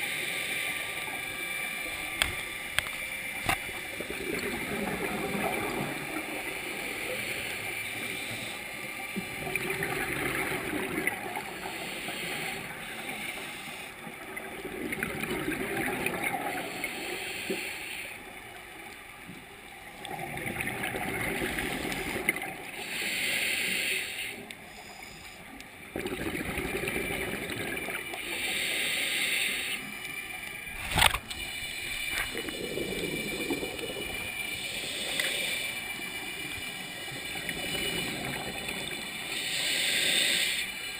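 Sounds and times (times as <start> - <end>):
regulator hissing inhale: 0.0 - 2.7, 6.8 - 8.9, 11.6 - 14.0, 16.7 - 18.3, 22.6 - 25.6, 28.2 - 30.2, 31.4 - 33.0, 34.3 - 37.0, 39.1 - 40.9.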